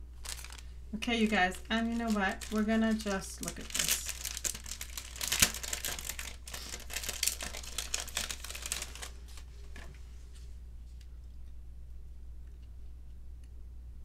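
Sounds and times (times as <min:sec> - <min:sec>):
plastic packet crinkling: 0:00.0 - 0:09.9.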